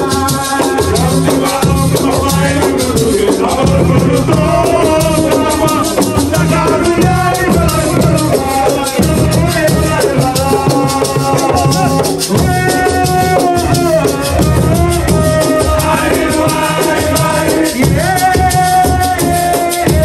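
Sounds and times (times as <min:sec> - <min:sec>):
drums: 0:00.0 - 0:20.0
held melodic phrases: 0:13.2 - 0:17.9.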